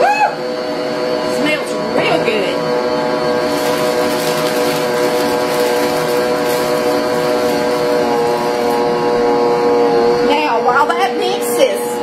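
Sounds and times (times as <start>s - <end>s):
stand mixer motor humming: 0.4s - 10.3s.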